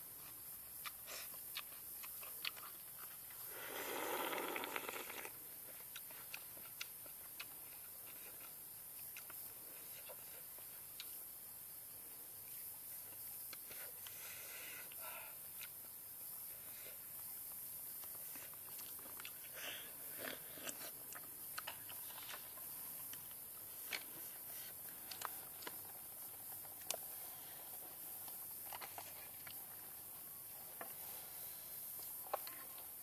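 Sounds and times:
steady high hiss: 0:00.0 - 0:33.0
person chewing: 0:00.2 - 0:03.5, 0:04.3 - 0:11.2, 0:18.0 - 0:30.0.

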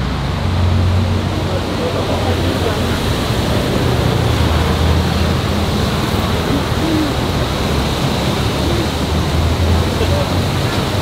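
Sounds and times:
traffic noise: 0:00.0 - 0:11.0.

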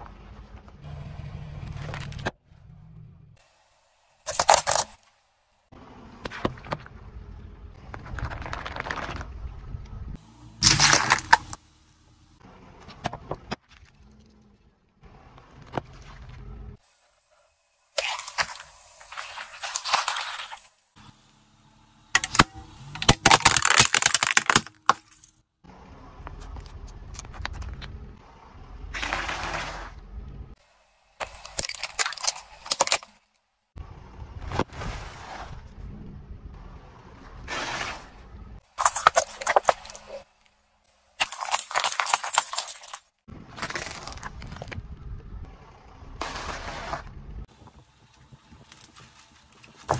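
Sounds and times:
plastic toy breaking cracks: 0:04.3 - 0:05.0, 0:10.6 - 0:11.6, 0:22.2 - 0:25.4, 0:31.2 - 0:33.1
tyre crushing objects crunching: 0:04.3 - 0:05.0, 0:10.6 - 0:11.6, 0:18.0 - 0:20.7, 0:22.2 - 0:25.3, 0:31.2 - 0:33.1, 0:38.8 - 0:40.3, 0:41.2 - 0:44.7
tube crunched flat: 0:10.6 - 0:11.6, 0:22.2 - 0:25.3
water beads bursting: 0:10.6 - 0:11.6.

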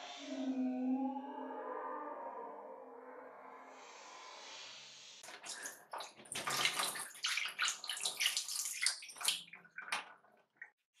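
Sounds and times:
water splashing into sink: 0:05.2 - 0:10.8.

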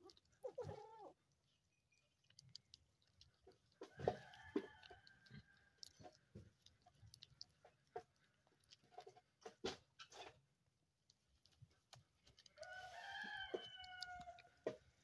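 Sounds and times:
goat nibbling bread clicks: 0:02.0 - 0:15.0
rooster crowing: 0:12.6 - 0:14.5.

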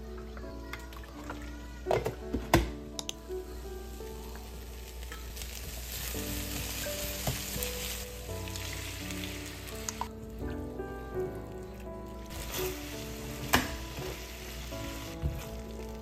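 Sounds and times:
soft background music: 0:00.0 - 0:16.0
food sizzling in a frying pan: 0:03.4 - 0:16.0
spatula stirring: 0:11.4 - 0:16.0.

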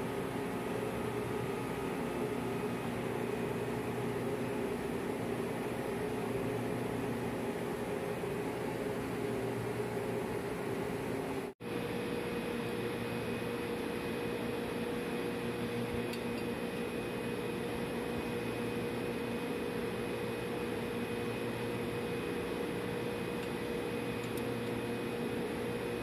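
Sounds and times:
machinery hum with whine: 0:00.0 - 0:26.0.

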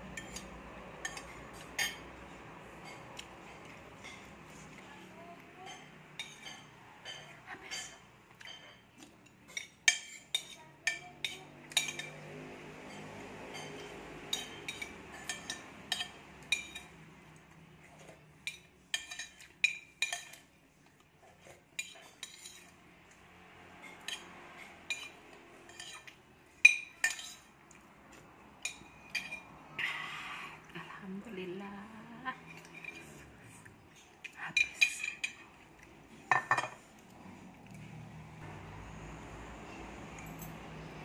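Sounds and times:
metal spoon clinking on ceramic plate: 0:05.7 - 0:08.8, 0:09.5 - 0:12.2, 0:12.9 - 0:17.0, 0:18.4 - 0:20.5, 0:24.9 - 0:27.5, 0:28.6 - 0:29.5, 0:36.3 - 0:36.8.

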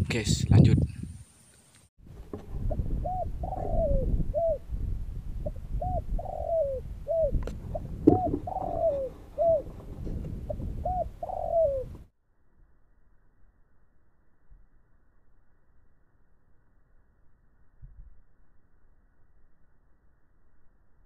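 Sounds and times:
low rumble: 0:02.1 - 0:06.2
dove cooing: 0:02.7 - 0:04.7, 0:05.4 - 0:12.1.

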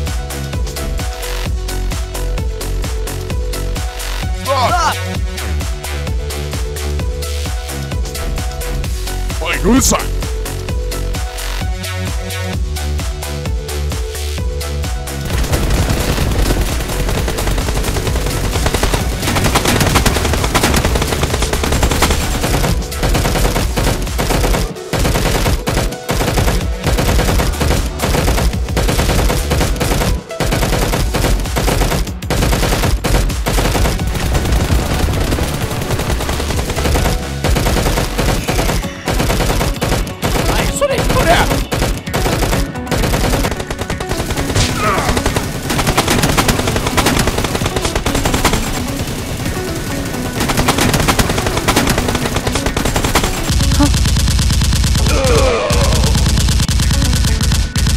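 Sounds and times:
automatic gunfire bursts: 0:15.3 - 0:57.9.

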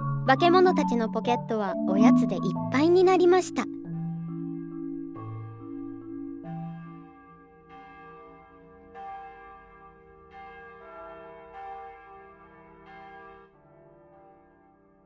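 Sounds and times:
clock-tower bell tolling: 0:03.8 - 0:13.9.

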